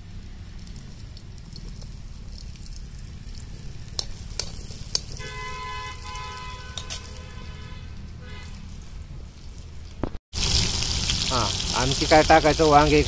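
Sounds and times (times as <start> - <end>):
garlic sizzling in hot oil: 0.0 - 7.3, 10.4 - 13.0
metal spoon clicking on pan: 3.9 - 5.2.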